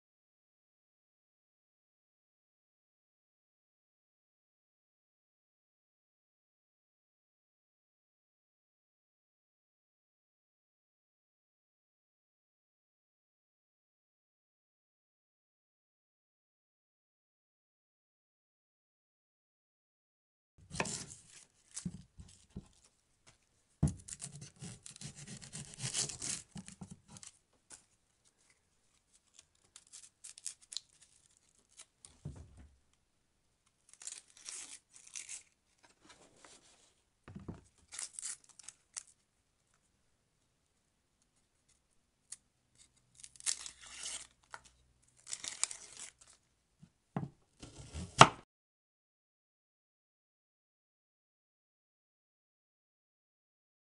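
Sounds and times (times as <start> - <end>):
scissors snipping plastic: 23.9 - 27.9
plastic wrapping crinkling: 25.8 - 32.2, 45.2 - 46.4.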